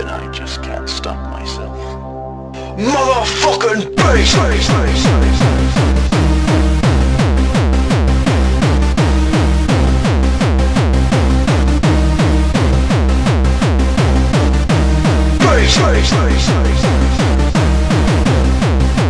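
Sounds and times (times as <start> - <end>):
heavy kick drum: 4.0 - 19.0
loud bass line: 4.0 - 19.0.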